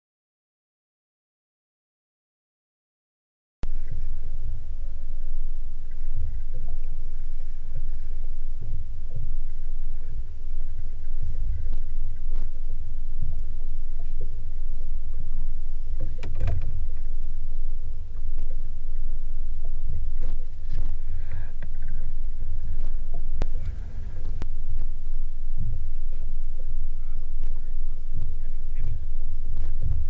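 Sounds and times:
muffled boat engine rumble: 3.6s - 30.0s.

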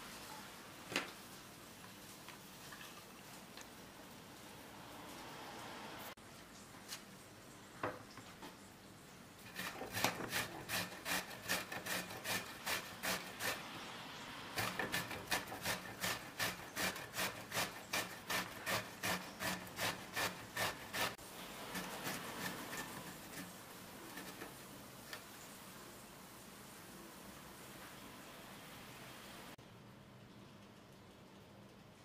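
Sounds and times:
grater rasping vegetable: 9.4s - 13.8s, 14.6s - 24.6s.

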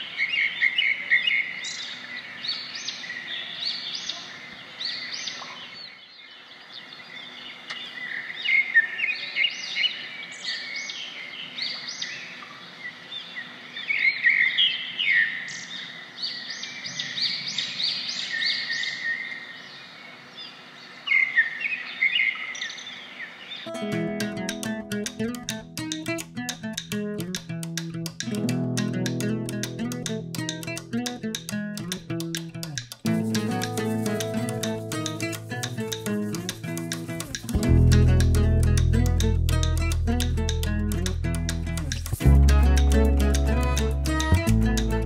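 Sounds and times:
small birds chirping: 27.6s - 45.0s.

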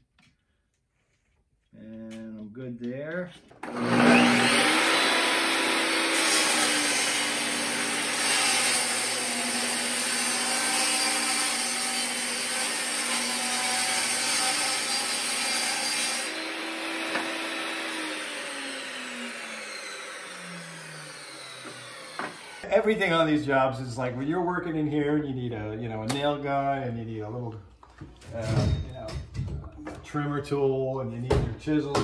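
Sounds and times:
saw blade winding down: 3.6s - 10.5s, 14.4s - 22.7s
table saw cutting wood: 3.6s - 22.8s.

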